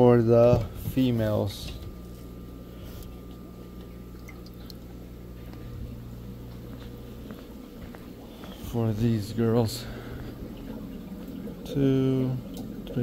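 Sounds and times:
steady low hum: 0.0s - 13.0s
wet squishing and dripping: 2.9s - 5.6s.

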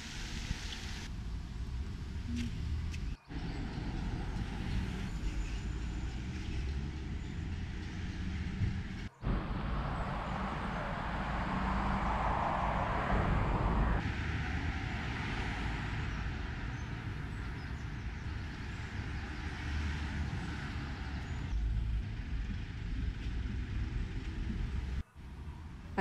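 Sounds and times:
cars passing: 1.0s - 26.0s.

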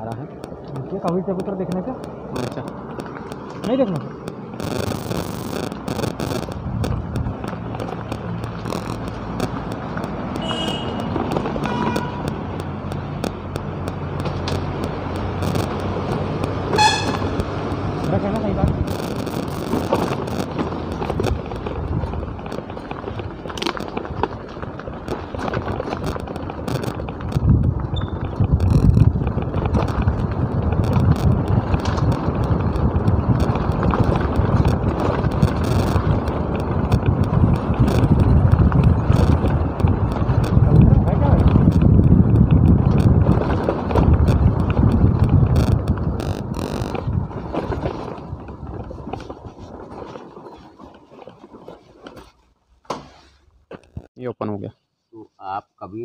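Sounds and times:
clicks and rattles: 0.0s - 52.3s
motorcycle rumble: 0.0s - 54.2s
road noise: 0.0s - 56.0s
wind buffeting microphone: 6.4s - 19.0s, 20.7s - 50.9s.

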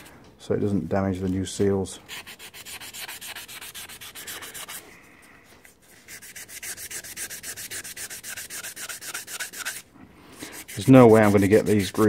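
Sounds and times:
abrasive paper rubbing on metal: 5.9s - 9.8s, 10.4s - 12.0s.

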